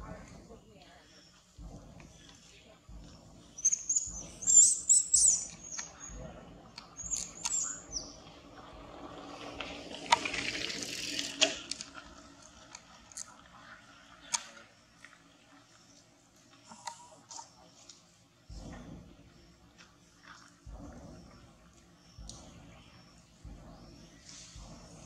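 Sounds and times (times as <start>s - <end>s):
hissing rustle with clicks: 0.0s - 25.0s
baby monkey squealing: 3.6s - 5.9s.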